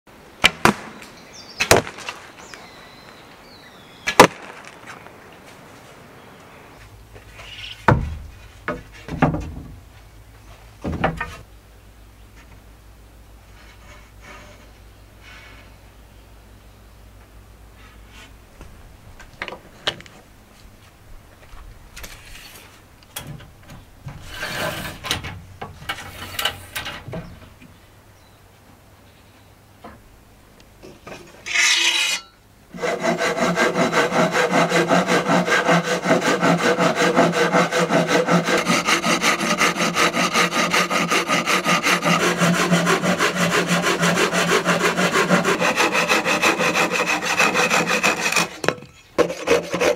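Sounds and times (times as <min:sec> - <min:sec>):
bow shot sharp cracks: 0:00.4 - 0:02.6, 0:04.0 - 0:05.2
dull knocks: 0:07.9 - 0:09.8
tape measure rasping over wood: 0:31.4 - 0:49.9.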